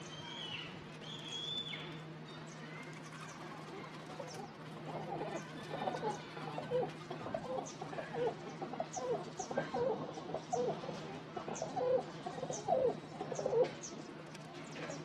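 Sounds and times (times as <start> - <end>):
pigeons cooing: 3.6 - 14.0.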